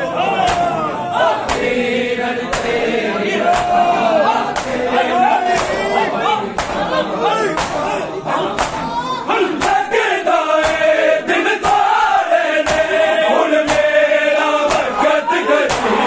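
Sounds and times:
men chanting a lament: 0.0 - 16.0
hands slapping chests: 0.4 - 0.8, 1.4 - 1.8, 2.5 - 3.9, 4.5 - 4.9, 5.5 - 9.9, 10.6 - 11.0, 11.6 - 12.0, 12.6 - 13.0, 13.6 - 14.0, 14.6 - 15.0, 15.6 - 16.0.

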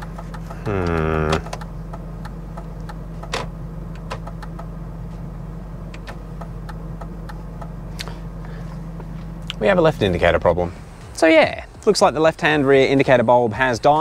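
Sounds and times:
turn-signal relay ticking: 0.0 - 4.7, 5.9 - 7.8
car engine idling: 0.0 - 14.0.

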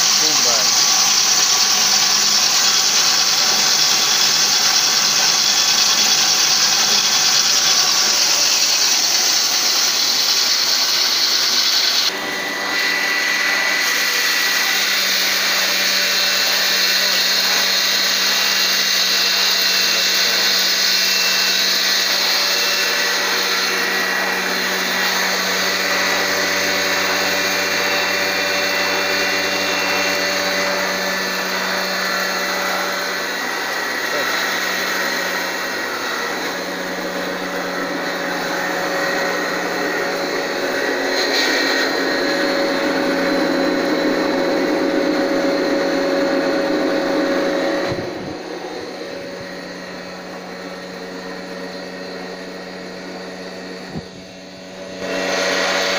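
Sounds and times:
grain hissing through mill: 0.0 - 48.1
grain mill running: 0.0 - 55.9
steady hum: 23.0 - 55.9.

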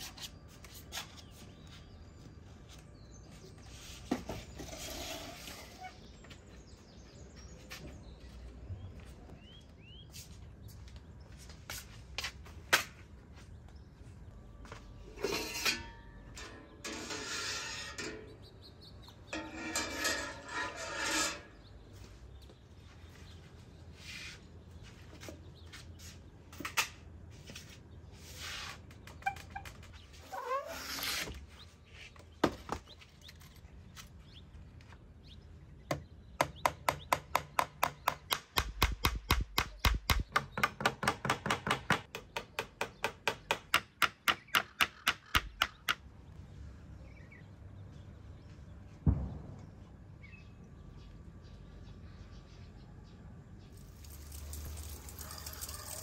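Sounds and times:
hammer striking a nail: 35.9 - 46.0
thump: 49.0 - 49.6.

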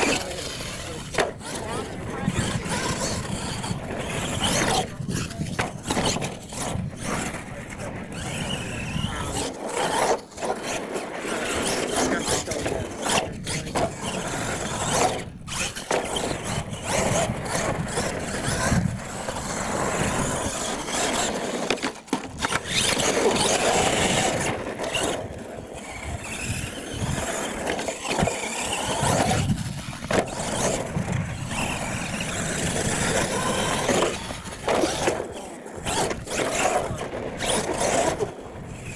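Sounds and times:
toy truck motor whining: 0.0 - 38.9
tyre noise on dirt: 0.0 - 38.9.

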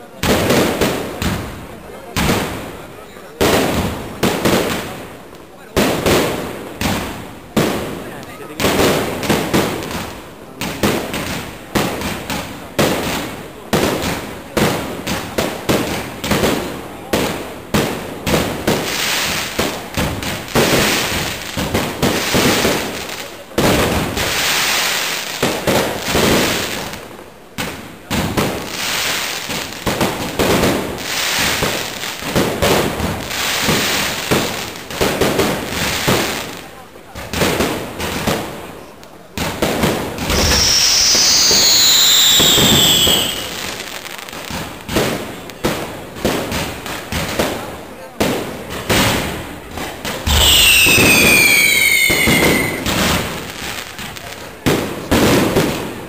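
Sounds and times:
fireworks hissing and crackling: 0.0 - 56.0
firework shell bangs: 50.2 - 53.3.

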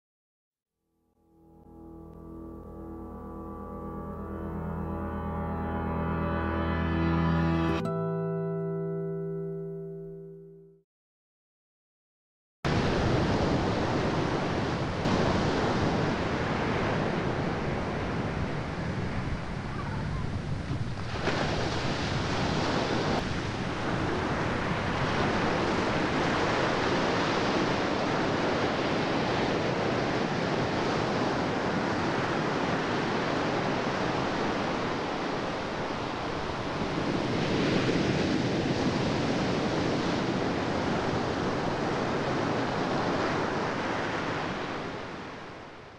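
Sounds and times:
sea water rushing: 12.7 - 45.8
wind on microphone: 12.7 - 45.9.

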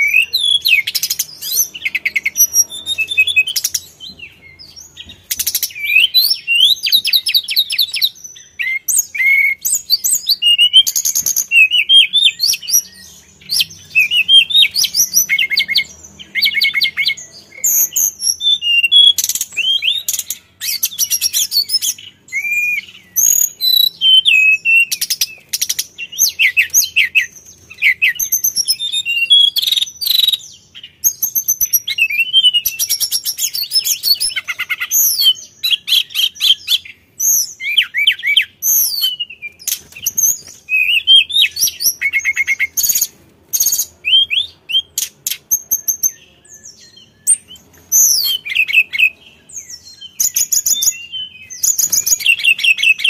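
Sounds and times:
bird singing trills and whistles: 0.0 - 53.0.

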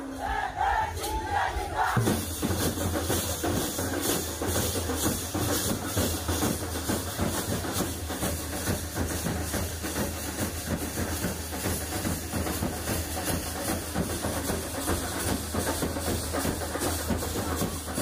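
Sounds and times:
drums: 0.0 - 18.0.

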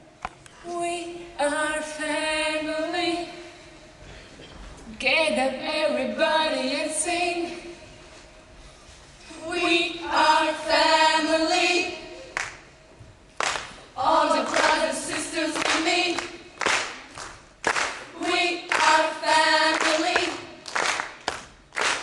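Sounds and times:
women singing together: 0.6 - 3.6, 5.0 - 7.8, 9.3 - 12.5, 14.0 - 16.9, 18.0 - 20.7
sharp hand claps: 12.4 - 12.6, 13.4 - 13.8, 15.6 - 18.1, 19.7 - 22.0.

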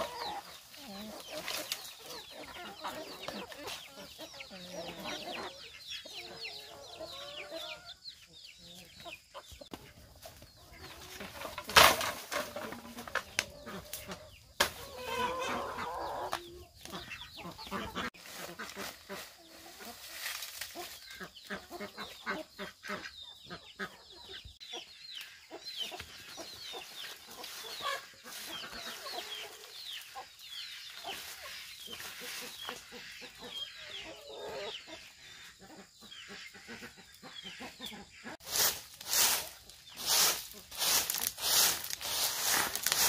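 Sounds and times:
chickens clucking: 0.0 - 43.0
loud rustling scrapes: 38.4 - 43.0.

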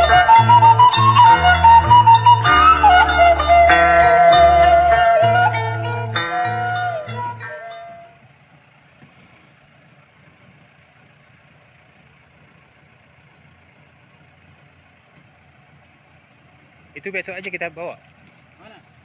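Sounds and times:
background music: 0.0 - 8.1
pickup engine idling: 0.0 - 19.0.

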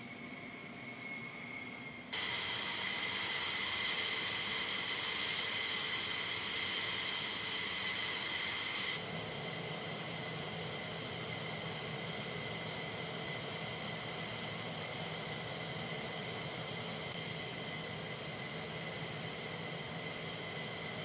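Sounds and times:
fighter jet engines whining: 0.0 - 21.0.

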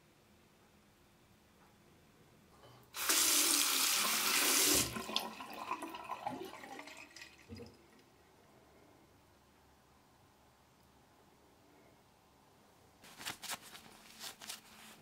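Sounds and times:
tap water running: 2.9 - 7.8.

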